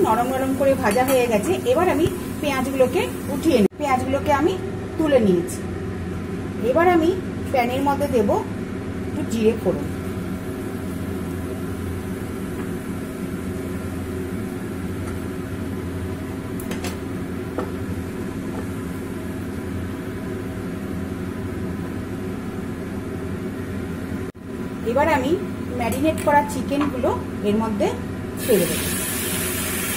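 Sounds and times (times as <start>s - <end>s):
seeds sizzling in hot oil: 28.4s - 29.9s.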